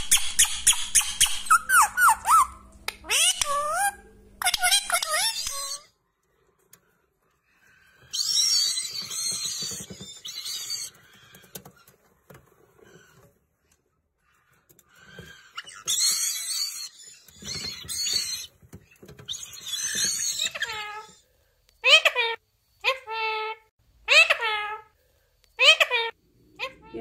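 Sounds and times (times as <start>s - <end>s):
parrot chicks begging calls: 0.7s - 5.8s, 14.9s - 18.5s.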